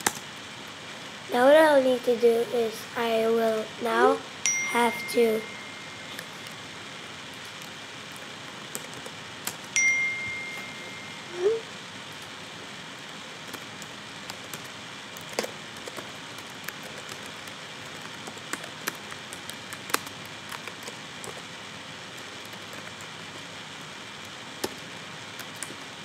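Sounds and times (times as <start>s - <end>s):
typing on computer keyboard: 8.7s - 9.6s, 13.5s - 21.4s, 22.2s - 23.1s.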